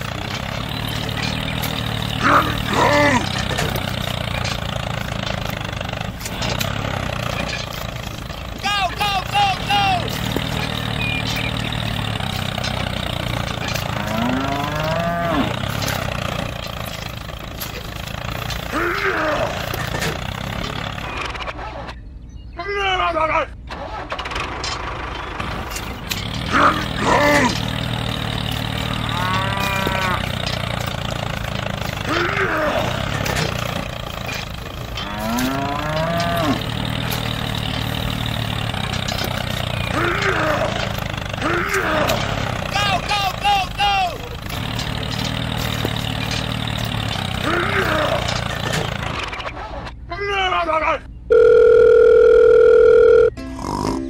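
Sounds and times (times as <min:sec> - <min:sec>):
engine hum: 0:00.0 - 0:22.6, 0:23.5 - 0:54.0
cow mooing: 0:13.5 - 0:16.1, 0:28.8 - 0:30.9, 0:34.8 - 0:37.2.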